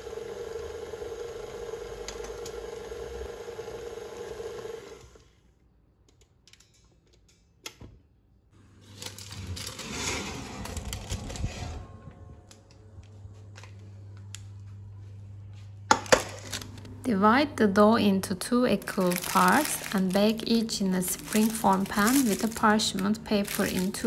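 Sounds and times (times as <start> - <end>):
stand mixer motor whine: 0.0 - 5.2
low hum: 8.6 - 24.0.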